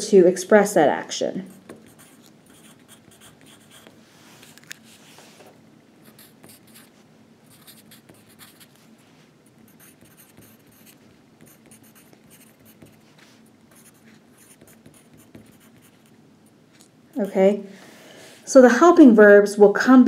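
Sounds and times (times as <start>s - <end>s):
pen scratching while writing: 1.5s - 3.9s, 6.1s - 6.9s, 7.5s - 8.8s, 9.7s - 13.0s, 13.7s - 16.1s.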